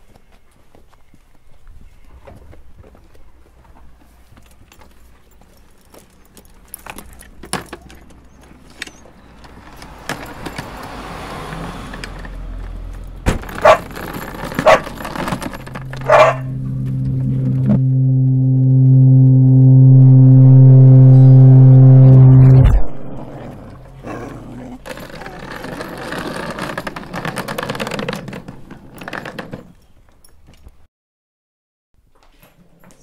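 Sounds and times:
bags rustling and clicking: 13.4s - 16.2s
low droning tone: 13.8s - 24.1s
short sharp sounds: 15.6s - 24.0s.

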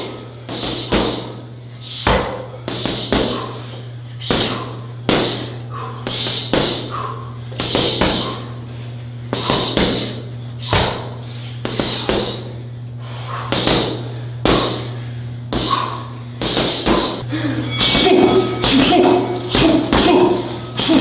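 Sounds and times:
punches thudding on heavy bag: 0.0s - 1.4s, 2.0s - 3.5s, 4.2s - 8.4s, 9.3s - 12.5s, 13.4s - 14.9s, 15.5s - 17.2s
steady low hum: 0.0s - 21.0s.

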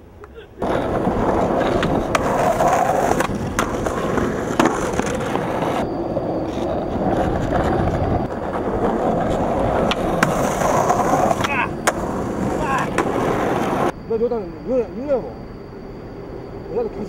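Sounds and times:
skateboard wheels rolling on asphalt: 0.0s - 13.9s
skateboard clacks: 0.2s - 5.8s, 6.4s - 13.9s
skateboard grinding on ledge: 0.6s - 13.9s.

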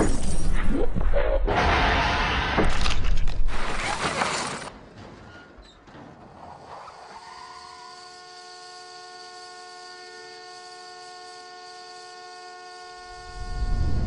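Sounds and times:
car horn blaring: 8.2s - 13.8s.

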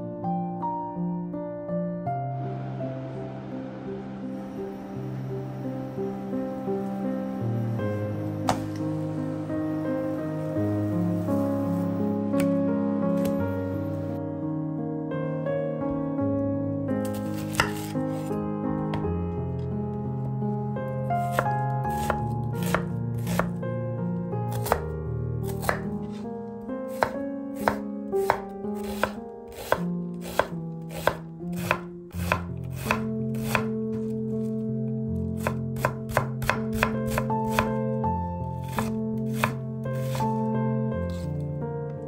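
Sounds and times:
soft background music: 0.0s - 42.0s
knife chopping on cutting board: 17.0s - 18.2s, 21.3s - 23.5s, 24.5s - 24.8s, 25.5s - 26.2s, 26.9s - 34.1s, 35.4s - 37.8s, 38.6s - 40.3s.

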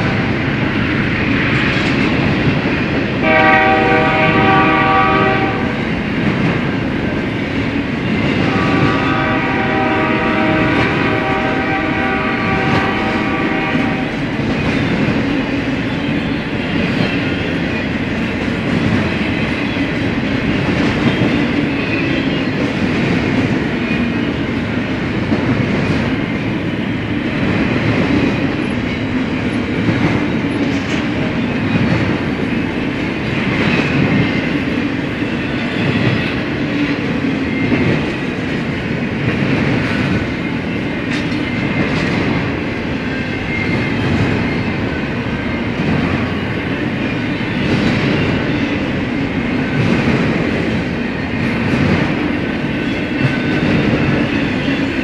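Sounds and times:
train wheels rumbling and clacking: 0.0s - 55.0s
train air horn blasts: 3.2s - 5.8s, 8.4s - 14.2s.

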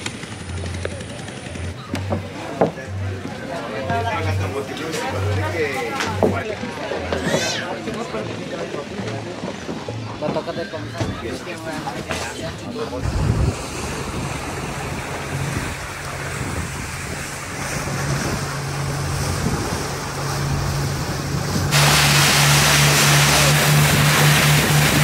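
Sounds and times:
speedboat engine drone: 0.0s - 25.0s
rushing water and spray: 13.0s - 25.0s
wind buffeting microphone: 13.0s - 25.0s.

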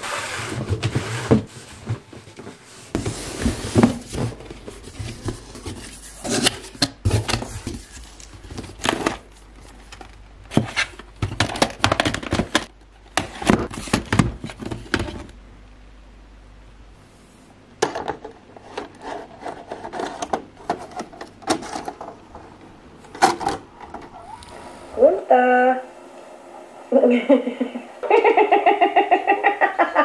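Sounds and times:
plastic cassettes clacking: 19.6s - 22.2s.

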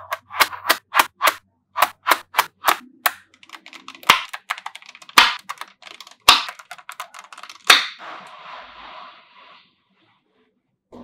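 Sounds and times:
magnetic balls clicking: 0.1s - 8.0s.

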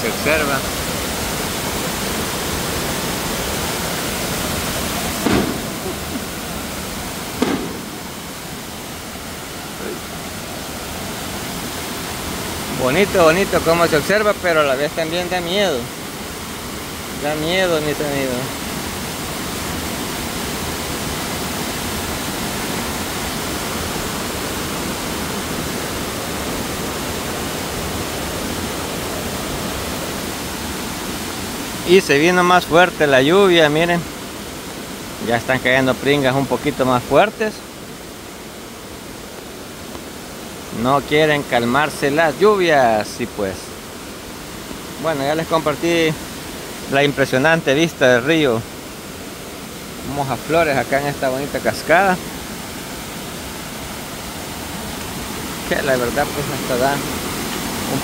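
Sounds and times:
waterfall rushing: 0.0s - 58.0s
short bump: 7.4s - 8.0s.

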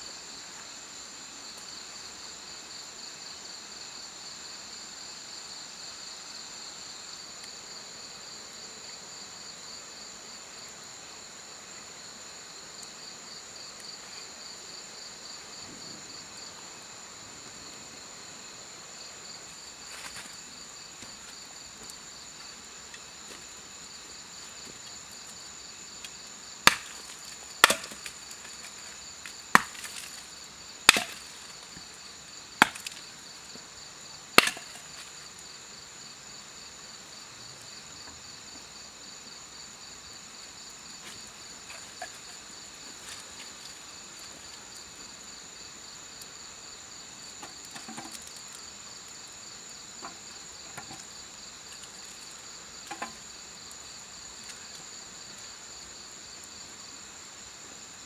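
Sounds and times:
crickets chirring: 0.0s - 58.0s
blade chopping into wood: 26.6s - 28.2s, 29.5s - 30.2s, 30.9s - 31.3s, 32.6s - 33.0s, 34.4s - 35.0s.

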